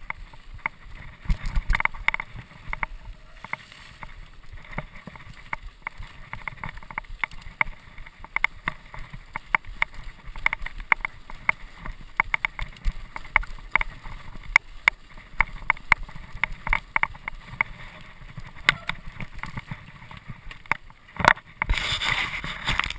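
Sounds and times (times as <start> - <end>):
mountain bike rattling: 0.0 - 22.9.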